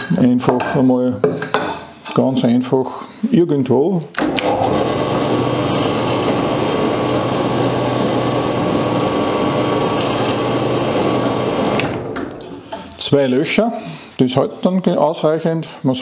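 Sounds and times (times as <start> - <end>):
drill press drilling wood: 4.2 - 12.3.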